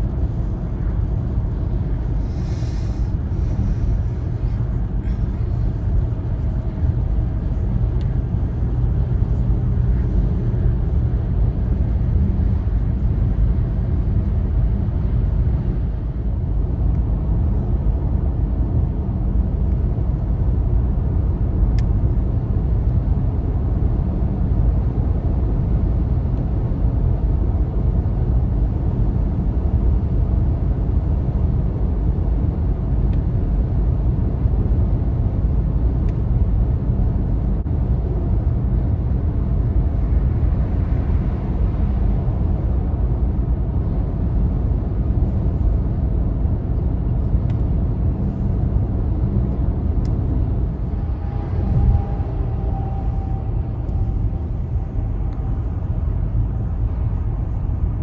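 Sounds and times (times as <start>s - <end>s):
car engine: 44.4s - 58.0s.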